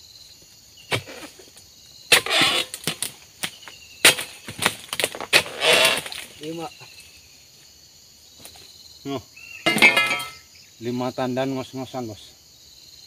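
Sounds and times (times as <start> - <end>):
leaves rustling: 0.3 - 8.9
chisel chopping fronds: 0.9 - 6.6.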